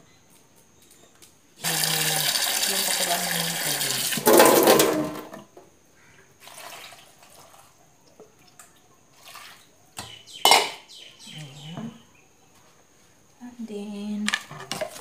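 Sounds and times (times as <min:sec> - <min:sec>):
bowl knocking against pot: 0:10.0 - 0:10.8.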